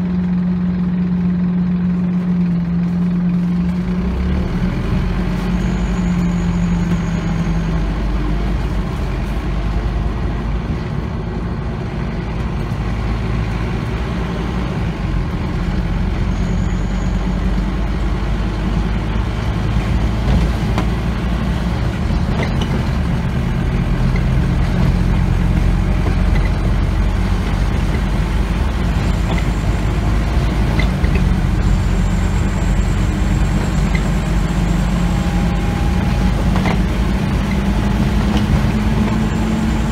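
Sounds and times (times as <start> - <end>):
diesel bus engine drone: 0.0 - 39.9
road noise: 0.0 - 39.9.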